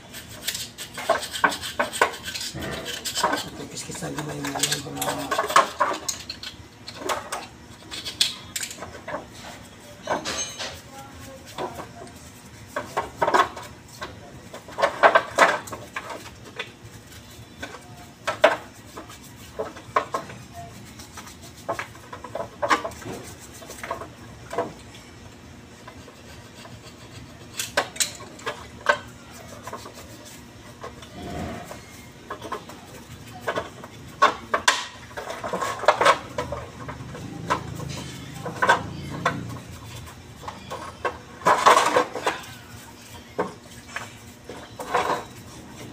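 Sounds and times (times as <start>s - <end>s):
metal scraping: 0.0s - 13.7s, 25.8s - 45.9s
metal tools clinking on steel: 10.0s - 10.9s.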